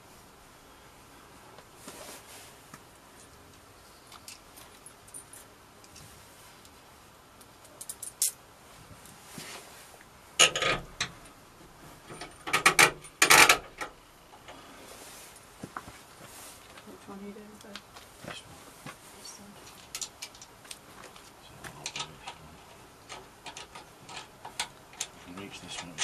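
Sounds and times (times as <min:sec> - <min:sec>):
metal bolts and washers clinking: 0:07.6 - 0:08.4, 0:10.4 - 0:11.2, 0:12.0 - 0:14.0, 0:21.8 - 0:26.0.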